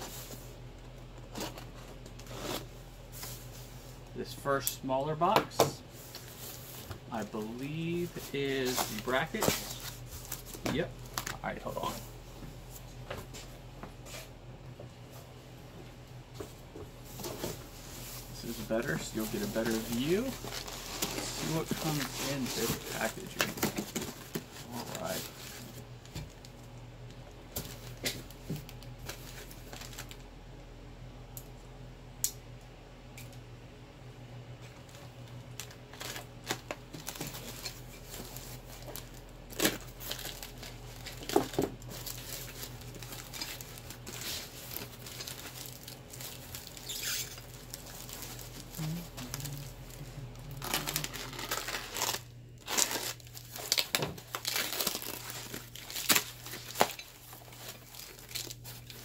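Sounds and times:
plastic packaging crinkling: 6.1s - 12.1s, 17.1s - 26.8s, 27.5s - 30.3s, 34.9s - 59.0s.

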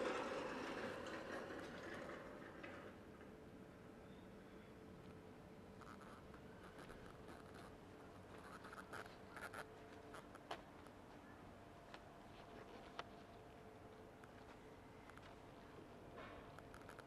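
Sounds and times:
faint room hum: 0.0s - 17.0s
light scratching: 5.8s - 10.5s
small ticks: 5.8s - 11.0s, 16.5s - 17.0s.

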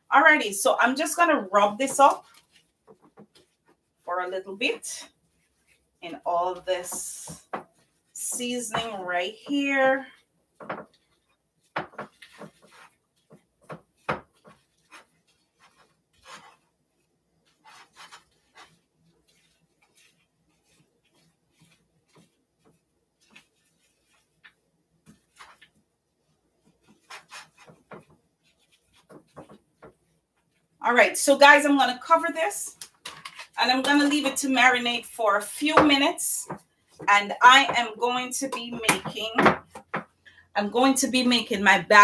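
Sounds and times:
gloved hand rubbing fish: 1.9s - 30.8s.

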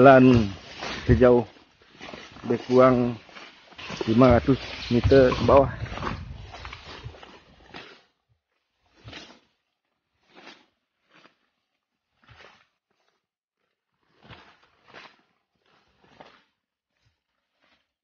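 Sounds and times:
footsteps through leafy undergrowth: 0.0s - 8.1s.

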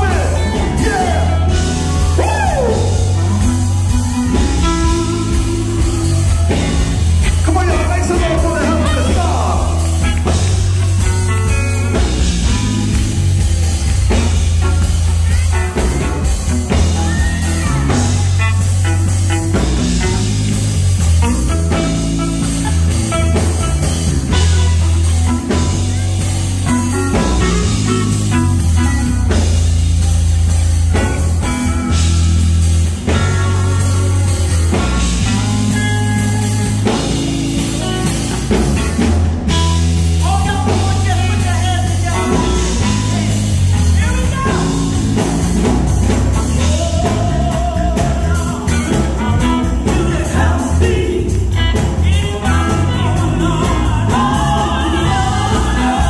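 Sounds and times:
live band music: 0.0s - 56.0s.

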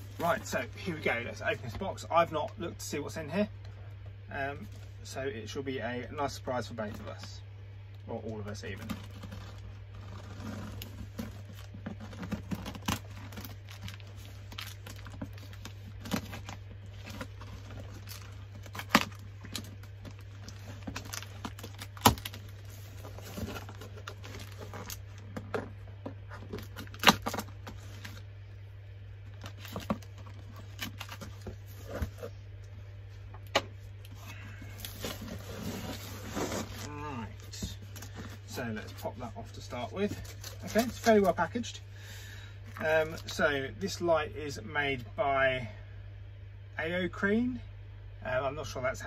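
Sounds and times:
cardboard flaps rustling: 8.2s - 28.2s, 34.6s - 41.4s
packing tape slit and torn: 9.0s - 25.0s, 26.5s - 28.2s.

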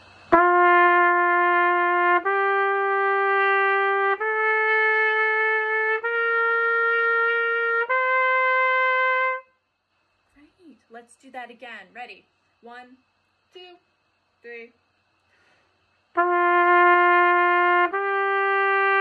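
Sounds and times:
trumpet playing rising scale: 0.3s - 9.6s, 16.2s - 19.0s.

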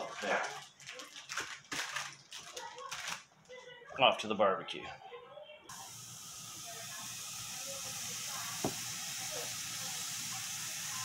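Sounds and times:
meat sizzling on grill: 5.7s - 11.0s.

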